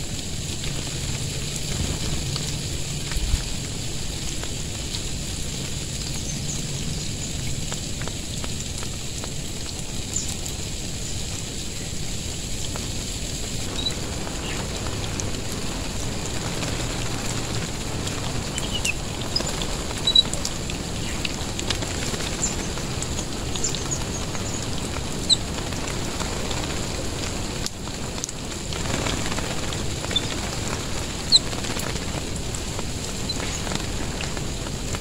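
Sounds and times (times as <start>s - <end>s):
water spraying on leaves: 0.0s - 35.0s
bird chirps: 13.8s - 14.6s, 18.5s - 20.3s.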